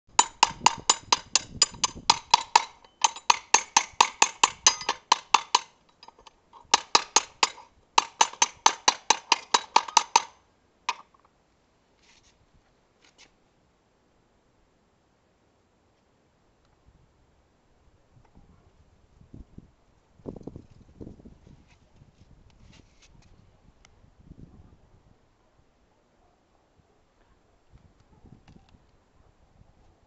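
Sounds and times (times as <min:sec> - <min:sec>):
hammer tapping on steel: 0:00.1 - 0:11.1.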